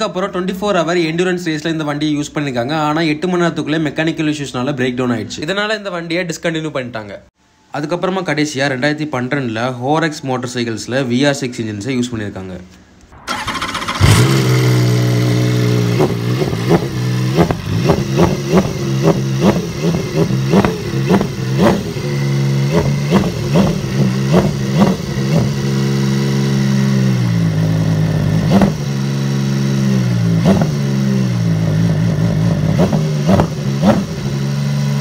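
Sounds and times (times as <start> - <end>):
motorcycle engine throttle blips: 13.0 - 35.0
motorcycle engine idling: 13.3 - 35.0.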